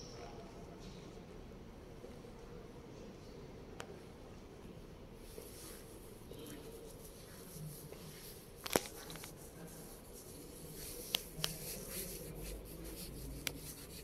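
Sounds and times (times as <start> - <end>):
rubbing on microphone: 5.2 - 14.0.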